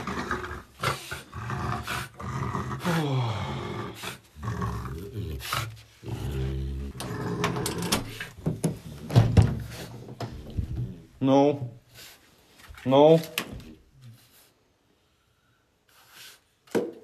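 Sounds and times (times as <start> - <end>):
dog growling and grunting: 0.0 - 11.2.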